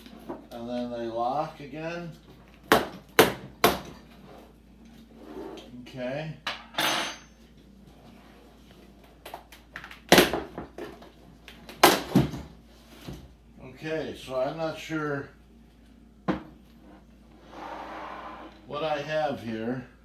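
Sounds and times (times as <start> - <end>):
rasping scrape: 17.3 - 18.6.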